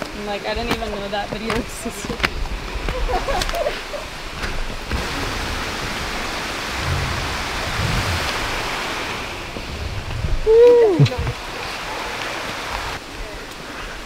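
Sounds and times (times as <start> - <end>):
river rushing: 0.0 - 14.0
person whooping: 10.4 - 11.2.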